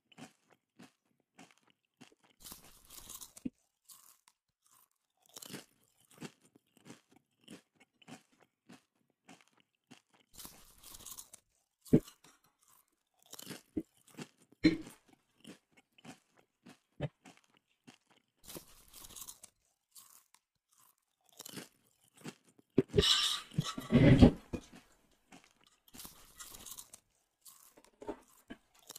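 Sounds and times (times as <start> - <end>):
chewing and crunching: 0.0 - 28.9.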